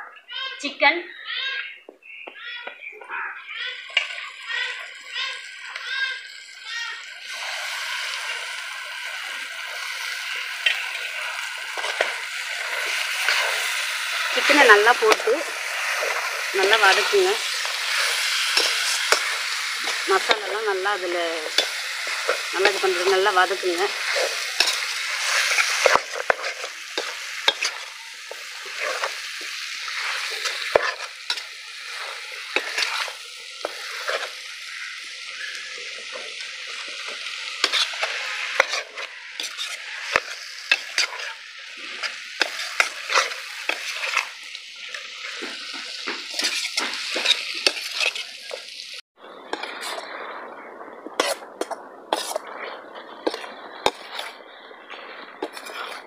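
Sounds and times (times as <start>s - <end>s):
food sizzling in a pan: 0.6s - 56.0s
metal ladle scraping a pan: 9.7s - 34.6s, 36.1s - 44.4s, 45.2s - 48.6s, 49.5s - 50.1s, 51.2s - 52.4s, 53.2s - 54.4s, 55.4s - 56.0s.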